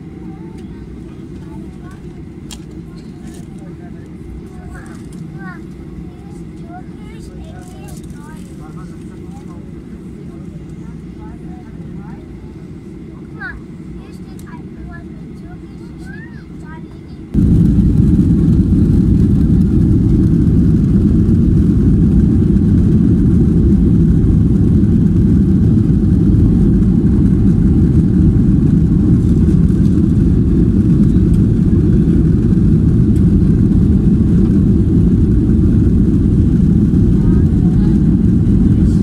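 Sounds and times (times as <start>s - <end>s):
jet engines roaring: 17.0s - 39.0s
wheels rumbling on runway: 17.4s - 39.0s.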